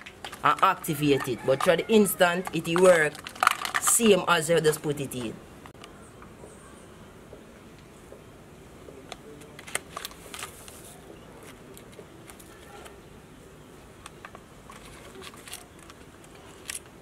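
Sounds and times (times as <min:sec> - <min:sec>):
plastic spoons clicking: 0:00.3 - 0:04.3
sachet crinkling: 0:09.6 - 0:12.9, 0:14.7 - 0:16.9.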